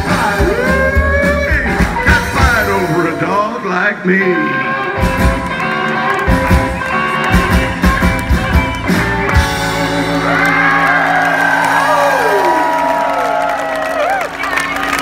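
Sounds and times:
rockabilly band playing: 0.0 - 15.0
crowd whooping: 9.9 - 15.0.

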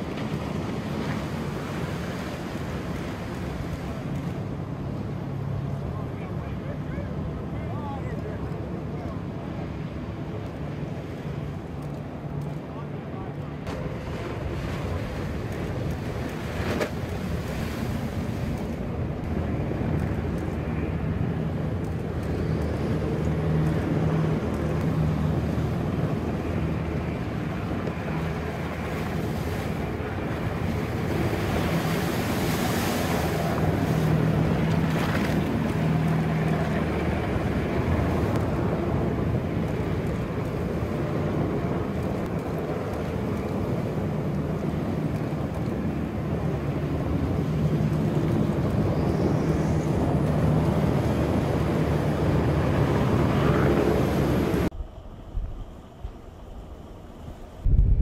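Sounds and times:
rushing water and spray: 0.0 - 12.6, 13.5 - 54.8
boat engines humming: 0.0 - 58.0
wind buffeting microphone: 13.6 - 58.0.

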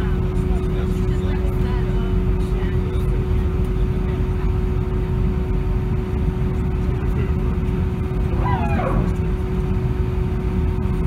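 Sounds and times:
airliner engines rumbling in cabin: 0.0 - 11.0
steady hum: 0.0 - 11.0.

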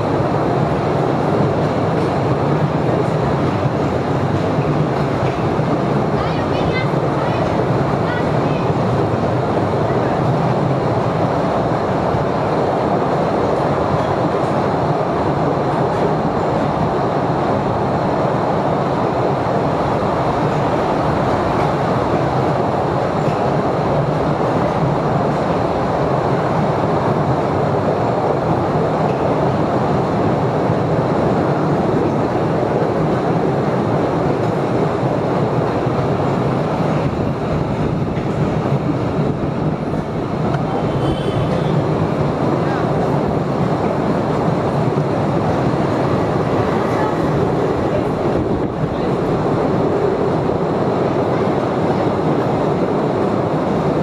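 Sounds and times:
train wheels rattling on track: 0.0 - 54.0.

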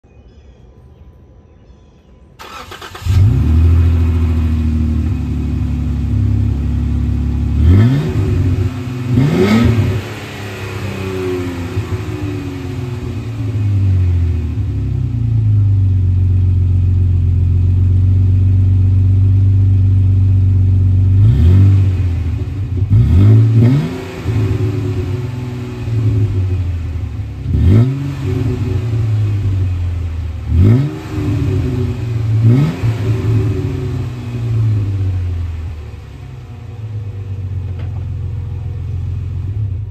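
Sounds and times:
car engine idling: 2.4 - 39.9
car engine revving: 2.4 - 39.9
car engine starting: 2.4 - 39.9.

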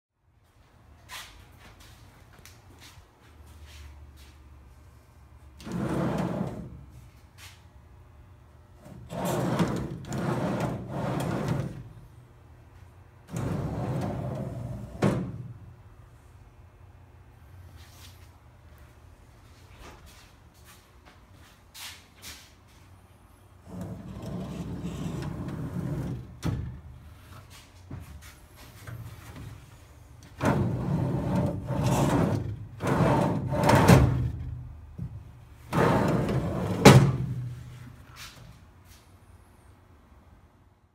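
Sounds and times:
door rolling on drawer slides: 5.6 - 6.8, 8.8 - 11.9, 13.3 - 15.6, 23.6 - 27.0, 30.2 - 34.6, 35.7 - 37.5.

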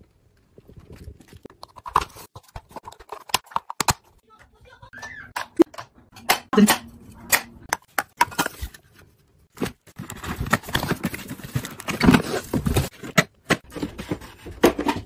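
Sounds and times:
hands handling plastic and cardboard: 0.0 - 4.2, 7.3 - 15.0.

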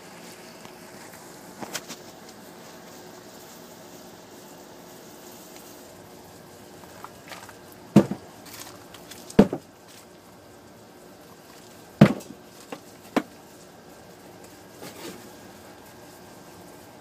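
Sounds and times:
faint steady hiss: 0.0 - 17.0
small ticks: 5.3 - 5.8
loud dull knocks: 7.9 - 8.3, 9.3 - 9.7, 12.0 - 13.3.

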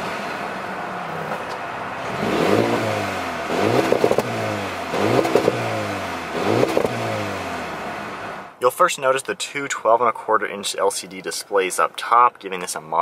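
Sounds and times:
car engine idling and revving: 0.0 - 8.6
exhaust crackles: 0.0 - 9.3.

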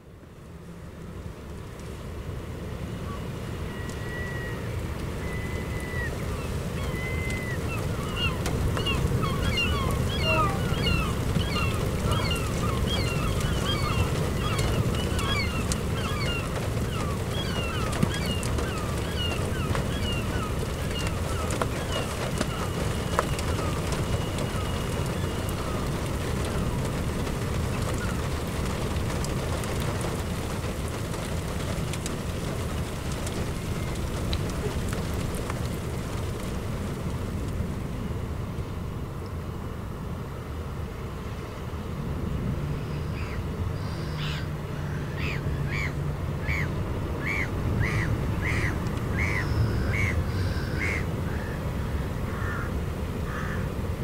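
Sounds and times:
low rumble of wind: 0.0 - 54.0
bird short sharp calls: 6.9 - 16.4.

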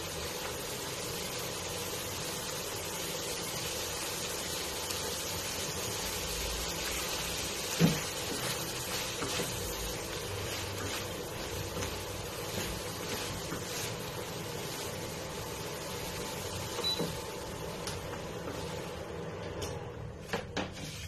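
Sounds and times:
shrimp sizzling in frying pan: 0.0 - 19.2
spatula scraping pan: 6.9 - 14.3
spatula knocking on pan: 7.7 - 8.6.

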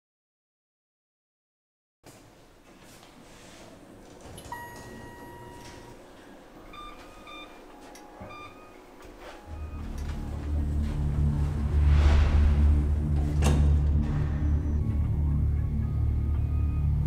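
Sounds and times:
electronic button panel beeps: 4.5 - 6.0, 6.7 - 8.8
low hum: 9.4 - 17.0.

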